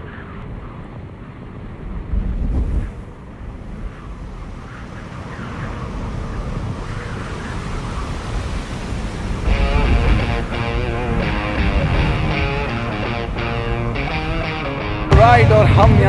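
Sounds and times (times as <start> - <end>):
low dense rumble: 9.5 - 16.0.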